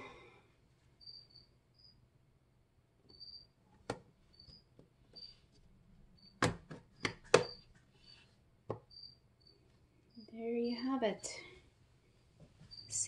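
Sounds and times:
cricket chirping: 0:01.0 - 0:02.0, 0:03.1 - 0:03.6, 0:04.3 - 0:05.4, 0:06.2 - 0:06.4, 0:07.0 - 0:11.4, 0:12.7 - 0:13.0.

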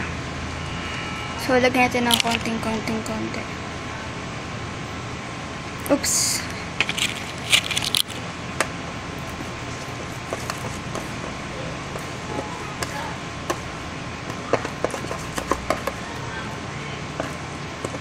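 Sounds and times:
low background noise: 0:00.0 - 0:18.0.

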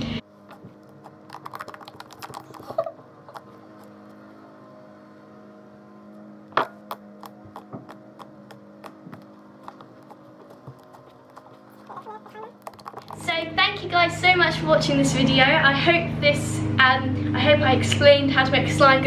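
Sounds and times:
steady low hum: 0:00.0 - 0:19.0
slime squishing with wet clicks: 0:00.8 - 0:03.9.

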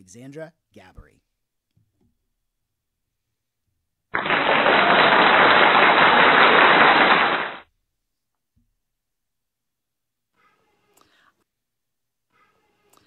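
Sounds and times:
loud burst of dense noise: 0:04.2 - 0:07.6.

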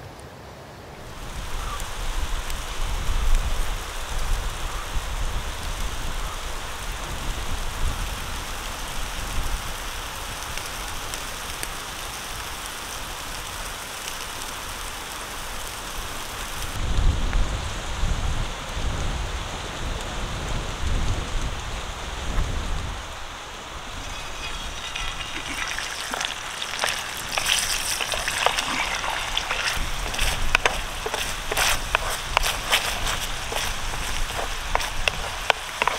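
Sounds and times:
chicken sizzling on charcoal grill: 0:01.0 - 0:16.8, 0:21.5 - 0:35.9
wood fire low rumbling: 0:01.1 - 0:35.9
oil popping: 0:23.8 - 0:35.9
sauce sizzling in hot oil: 0:23.8 - 0:35.9
wooden spatula stirring: 0:23.9 - 0:35.9.

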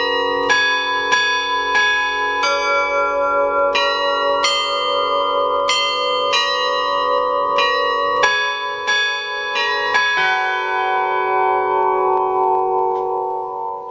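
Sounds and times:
bells ringing: 0:00.0 - 0:13.9.

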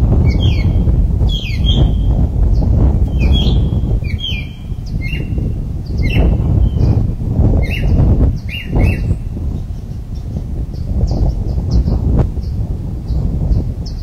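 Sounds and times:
birds chirping: 0:00.0 - 0:14.0
steady low rumble: 0:00.0 - 0:14.0.

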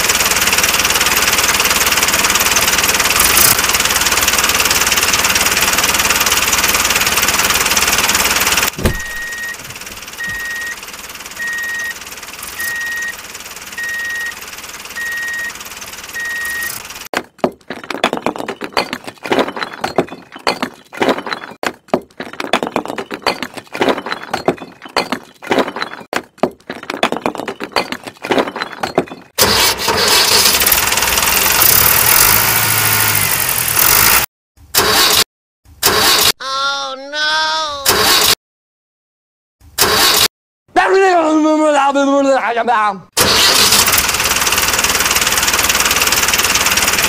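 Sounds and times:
engine-like noise: 0:00.0 - 0:17.1, 0:29.4 - 0:35.2, 0:43.2 - 0:47.0
repeating high beep: 0:08.8 - 0:09.6, 0:10.2 - 0:10.8, 0:11.4 - 0:13.2, 0:13.8 - 0:14.4, 0:15.0 - 0:15.6, 0:16.2 - 0:16.8.

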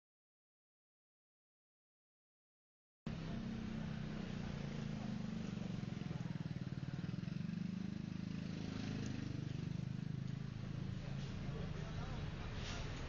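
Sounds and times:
car engine idling: 0:03.1 - 0:13.0.

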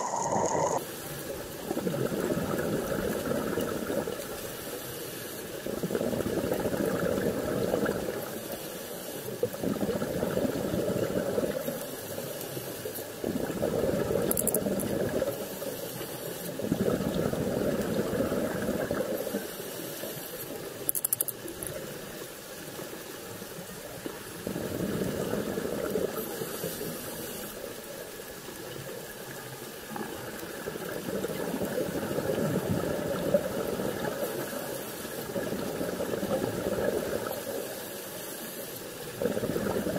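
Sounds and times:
exhaled bubbles underwater: 0:00.0 - 0:04.6, 0:05.5 - 0:08.6, 0:09.3 - 0:19.6, 0:23.5 - 0:27.7, 0:28.4 - 0:38.0, 0:38.8 - 0:39.9
regulator inhalation hiss: 0:26.2 - 0:27.6.

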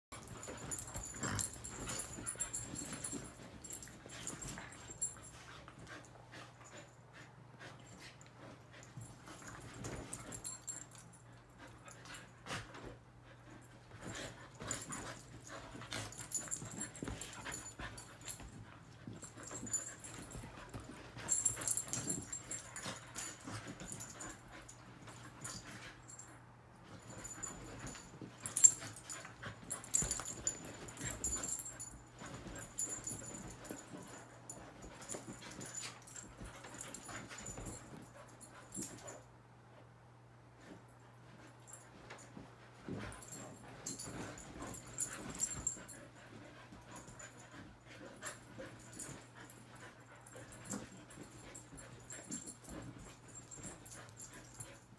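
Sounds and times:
dogs scuffling: 0:26.8 - 0:39.1, 0:40.7 - 0:54.9.

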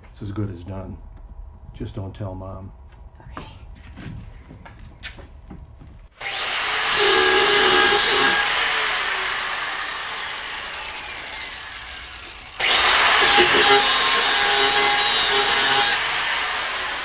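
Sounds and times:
power tool motor whine: 0:06.2 - 0:17.0.

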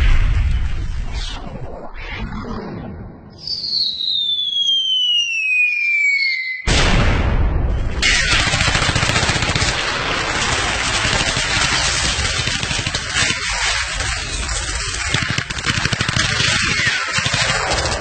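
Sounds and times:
explosion: 0:00.0 - 0:03.5, 0:06.7 - 0:15.6
falling bomb whistle: 0:03.3 - 0:06.7
gunfire crackle: 0:06.7 - 0:18.0.

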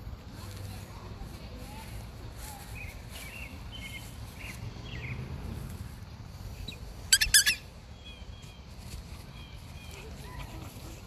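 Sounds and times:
high repeated squeaks: 0:07.1 - 0:07.6.

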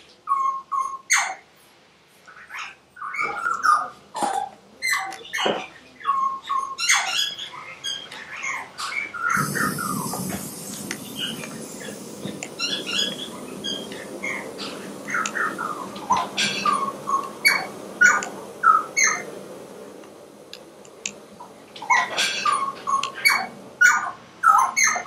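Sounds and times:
low rumble and hiss: 0:00.0 - 0:25.0
birds chirping: 0:05.0 - 0:25.0.

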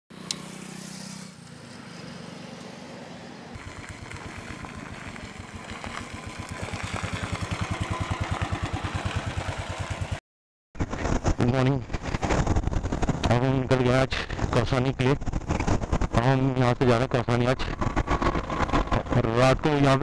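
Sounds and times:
motorcycle engine running: 0:00.1 - 0:10.2, 0:15.2 - 0:19.6.

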